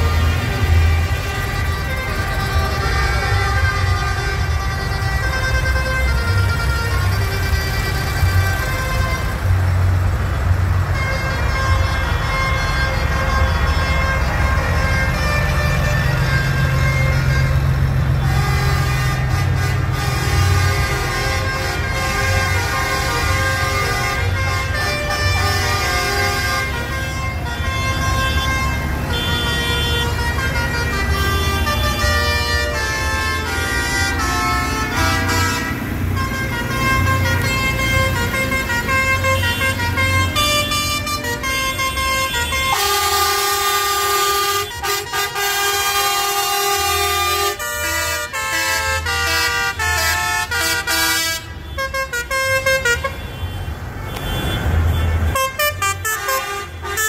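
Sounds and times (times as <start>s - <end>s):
tractor engines running: 0.0s - 57.0s
tractor horns honking: 0.0s - 57.0s.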